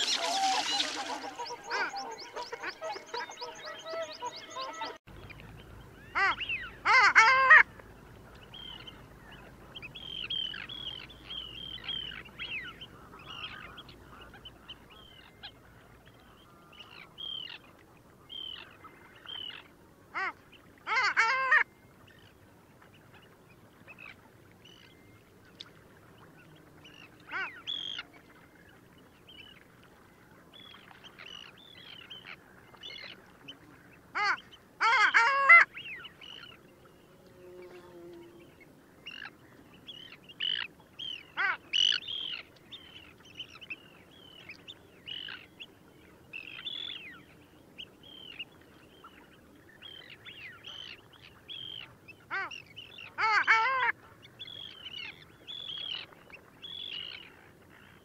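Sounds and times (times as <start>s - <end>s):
ducks calling loudly: 0.0s - 5.0s, 6.1s - 7.7s, 34.1s - 36.5s, 51.6s - 54.0s
faint high duck calls: 6.1s - 7.7s, 34.1s - 35.8s, 41.4s - 42.0s, 51.6s - 52.6s, 53.2s - 54.0s.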